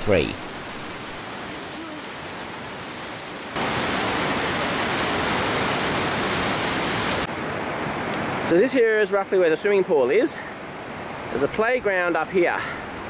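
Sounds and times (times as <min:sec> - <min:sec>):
river rapids rushing: 0:00.0 - 0:08.6.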